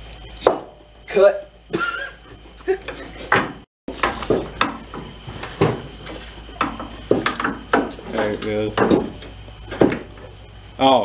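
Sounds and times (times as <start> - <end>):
metallic clinks and knocks: 6.6 - 10.4.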